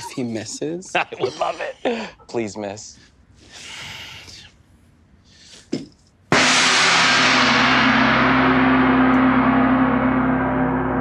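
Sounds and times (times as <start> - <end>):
large gong ringing: 6.4 - 11.0.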